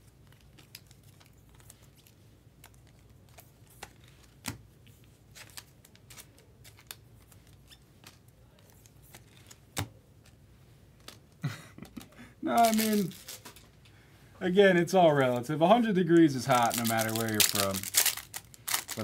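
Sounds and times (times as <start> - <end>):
cards clicking and tapping: 2.6 - 4.6, 5.4 - 10.4, 16.1 - 19.0
plastic sleeve rustling: 12.0 - 13.9, 16.0 - 19.0.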